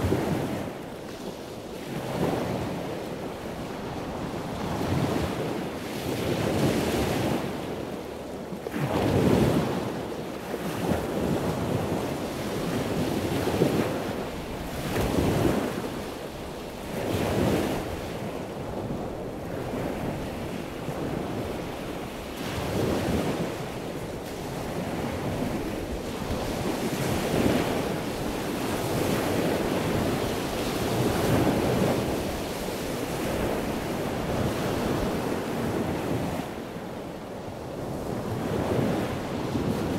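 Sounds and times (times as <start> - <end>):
wind buffeting microphone: 0.0 - 39.9
sea water rushing and splashing: 8.6 - 39.9.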